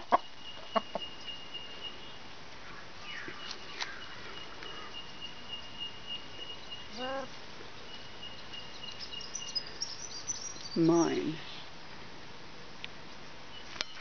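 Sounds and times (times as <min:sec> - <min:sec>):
hen clucking: 0:00.0 - 0:01.3.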